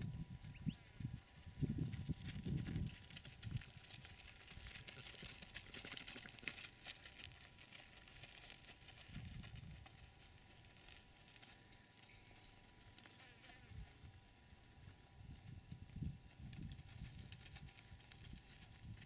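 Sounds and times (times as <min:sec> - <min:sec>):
faint crackling and rustling: 0:00.0 - 0:19.0
faint steady tone: 0:10.2 - 0:16.3.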